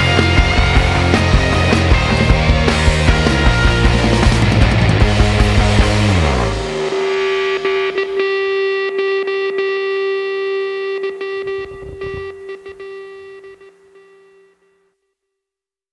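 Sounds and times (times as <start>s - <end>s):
rock music: 0.0s - 13.8s
held electric guitar note: 6.0s - 14.6s.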